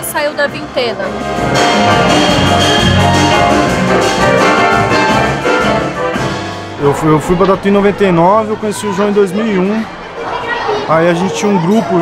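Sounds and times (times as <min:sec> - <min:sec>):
guitars: 0:01.2 - 0:06.8.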